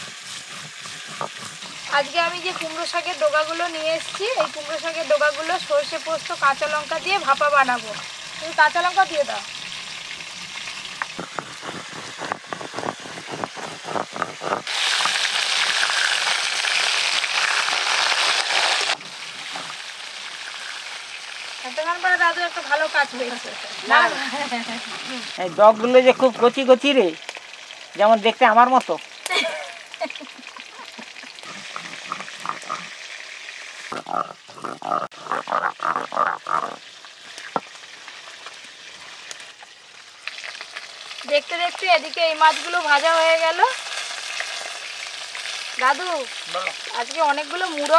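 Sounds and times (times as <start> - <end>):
stone grinding spice paste: 0.0 - 4.6, 11.2 - 15.2
fish frying in oil sizzling: 0.0 - 47.9.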